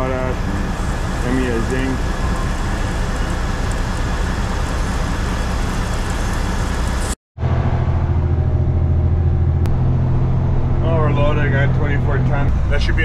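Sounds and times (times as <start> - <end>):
truck engine humming: 0.0 - 13.0.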